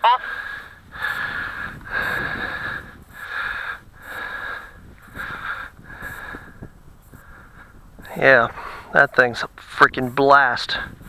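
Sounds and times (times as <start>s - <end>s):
person breathing close to microphone: 0.2s - 9.0s.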